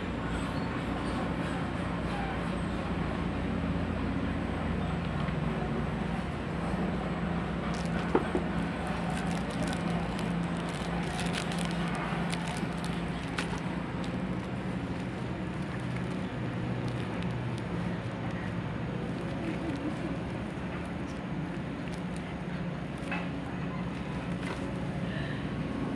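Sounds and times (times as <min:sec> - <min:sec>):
plastic packaging crinkling: 0:07.7 - 0:17.7.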